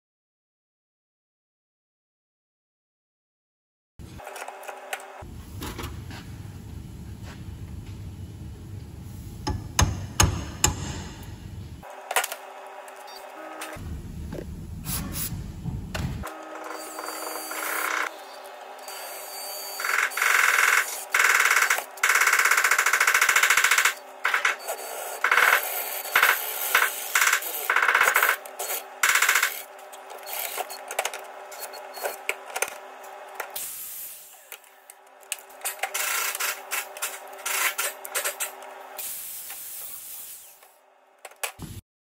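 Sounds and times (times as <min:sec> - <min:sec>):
electric drill boring through metal: 0:16.3 - 0:30.8.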